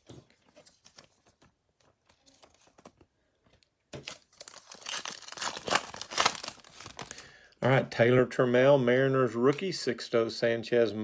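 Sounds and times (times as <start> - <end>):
foil card pack crinkling: 4.0 - 7.4.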